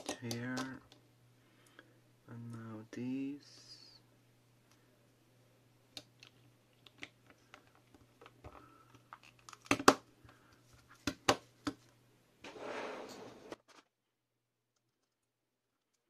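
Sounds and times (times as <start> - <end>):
faint steady hum: 0.0 - 13.6
sharp plastic snaps: 9.1 - 10.0
rustling scrape: 12.4 - 13.8.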